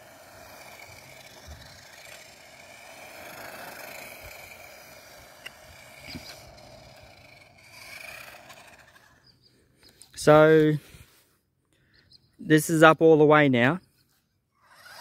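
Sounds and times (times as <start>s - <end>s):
toy truck electric motor whir: 0.0s - 10.1s, 14.5s - 15.0s.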